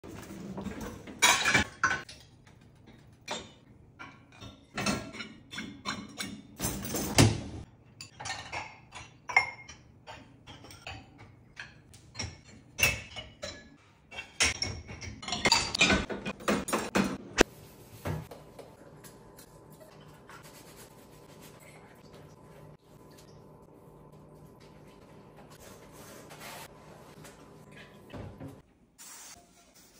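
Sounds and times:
dishes clinking in dishwasher racks: 0.1s - 20.4s
scrubbing at sink: 17.5s - 29.9s.

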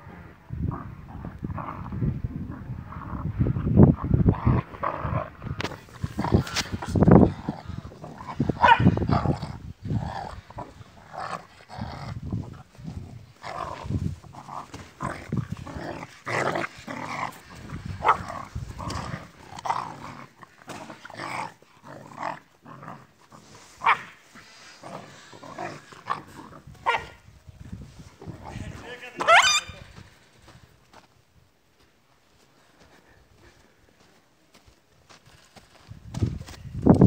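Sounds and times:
dogs growling: 0.0s - 27.2s
dogs barking: 8.6s - 9.0s, 26.8s - 27.2s.

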